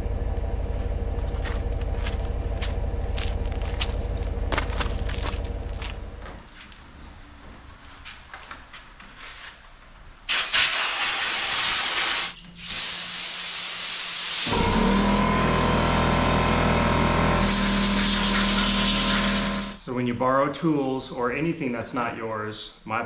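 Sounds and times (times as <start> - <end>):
motor humming: 0.0 - 6.4, 14.4 - 19.8
loud hissing spray: 10.3 - 14.6, 17.4 - 19.8.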